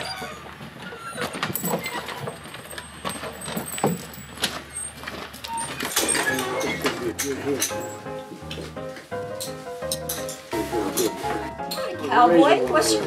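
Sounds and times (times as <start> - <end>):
boot footsteps on wooden boardwalk: 8.1 - 9.8.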